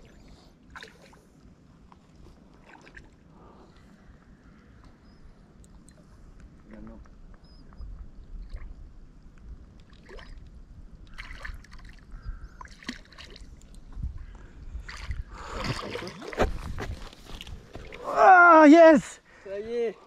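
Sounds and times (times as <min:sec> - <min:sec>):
water splashing from fish: 0:00.0 - 0:01.3, 0:02.5 - 0:03.2, 0:09.9 - 0:10.4, 0:11.1 - 0:13.9, 0:14.8 - 0:16.5.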